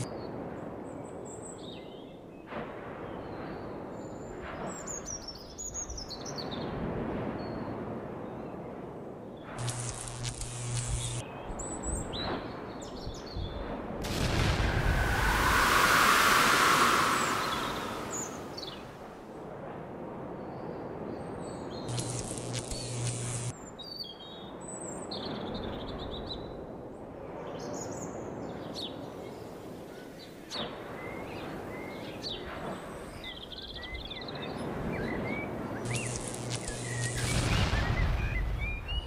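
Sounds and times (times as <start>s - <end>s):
outdoor background noise: 0.0s - 39.0s
short buzzing hiss: 9.6s - 11.2s, 21.9s - 23.5s, 35.9s - 37.4s.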